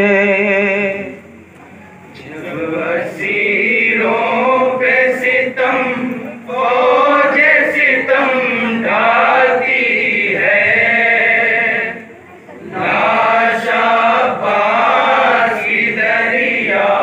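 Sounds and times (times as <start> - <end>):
men chanting a lament: 2.2 - 12.0.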